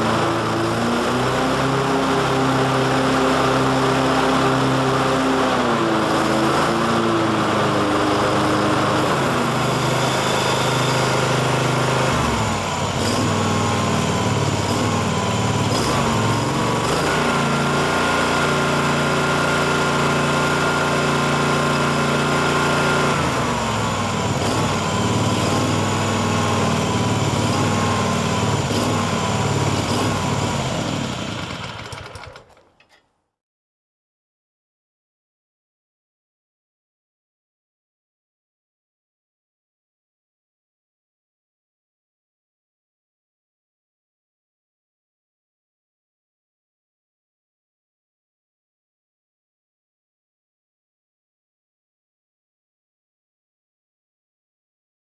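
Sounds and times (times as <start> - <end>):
mower engine running: 0.0 - 33.0.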